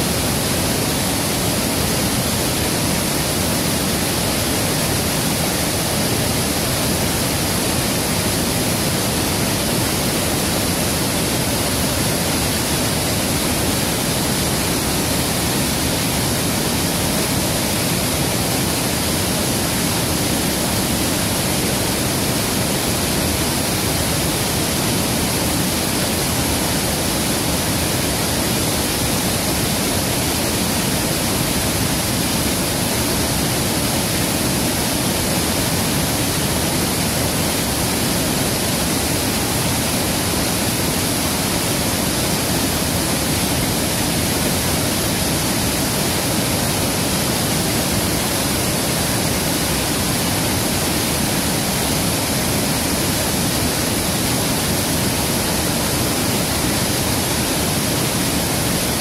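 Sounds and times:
river rushing: 0.0s - 59.0s.

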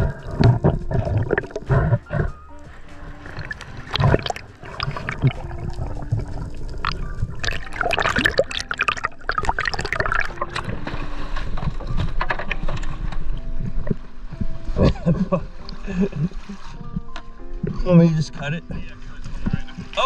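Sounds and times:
water splashing and sloshing: 0.0s - 20.0s
steady low rumble: 2.7s - 8.6s.

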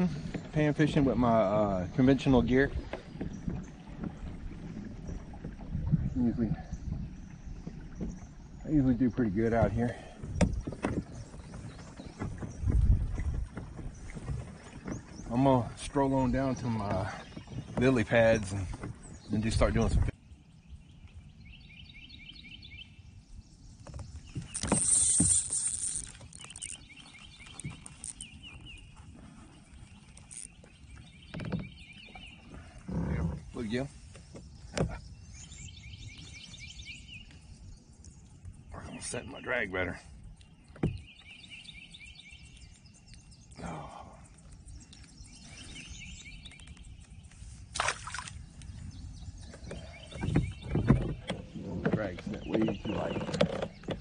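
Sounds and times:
reel clicks: 23.8s - 28.4s, 30.1s - 30.6s
fishing line hissing off reel: 24.5s - 26.8s.

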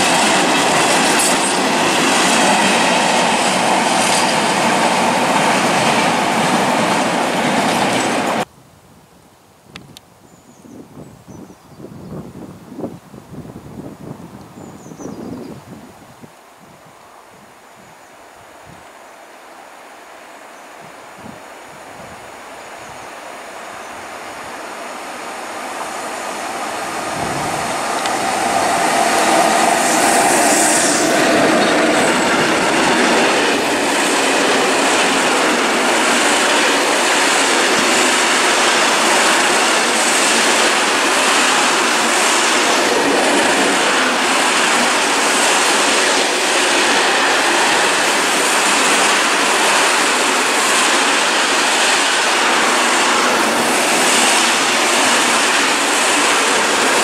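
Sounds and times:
electric locomotive passing: 0.0s - 8.5s, 21.5s - 57.0s.

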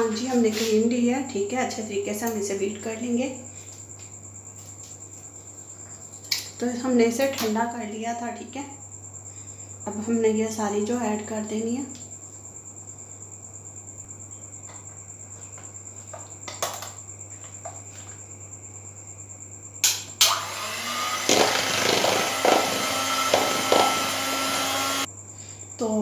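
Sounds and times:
faint steady hum: 0.0s - 20.6s, 21.7s - 26.0s
hand mixer whipping cream: 20.3s - 25.1s.

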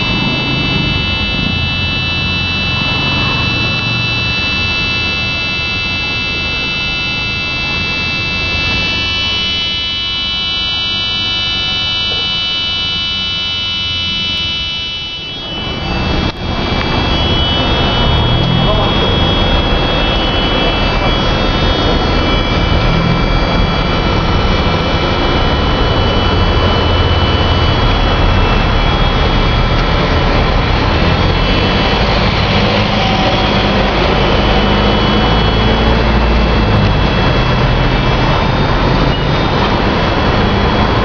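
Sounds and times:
machine rumbling with whining tones: 0.0s - 41.0s.

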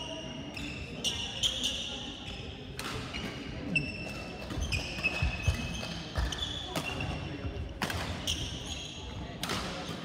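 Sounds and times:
shoes squeaking on court floor: 0.0s - 9.3s
racket hitting shuttlecock: 2.7s - 3.3s, 7.8s - 8.4s, 9.4s - 10.0s.

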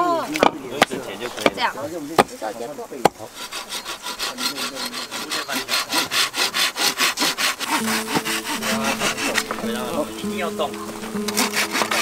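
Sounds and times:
hand saw cutting bamboo: 3.0s - 10.2s, 10.9s - 12.0s.

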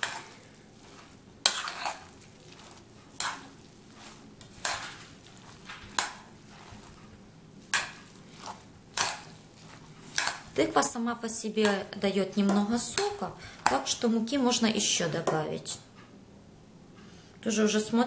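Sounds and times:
soft mushy stirring: 0.0s - 11.0s, 11.6s - 14.1s.

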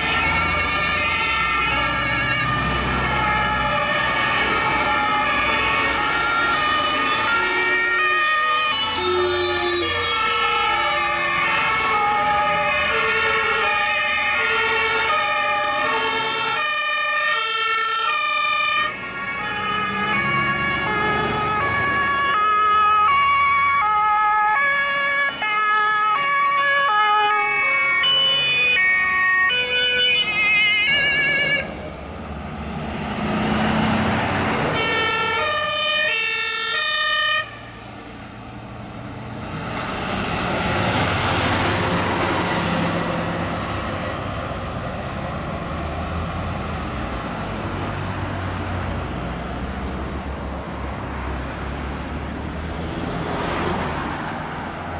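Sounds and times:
two-tone emergency sirens: 0.0s - 52.6s
truck engine and tyre noise: 0.0s - 54.9s.

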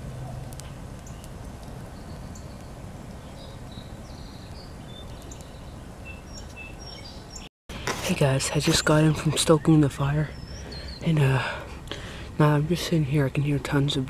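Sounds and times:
campfire crackling: 0.0s - 6.9s, 7.7s - 14.0s
birds chirping: 0.0s - 14.0s.

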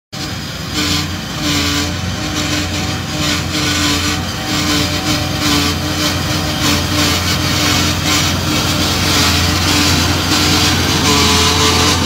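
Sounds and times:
farm machine engine humming: 0.1s - 12.0s
steady whine: 0.2s - 12.0s.

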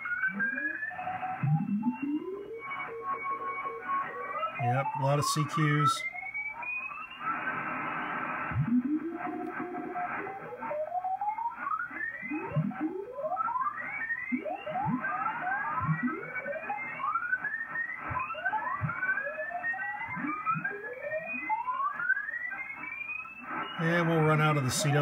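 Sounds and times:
morse code tones gliding in pitch: 0.2s - 6.2s
radio band noise hiss: 4.5s - 6.1s, 7.2s - 10.9s, 22.8s - 25.0s.

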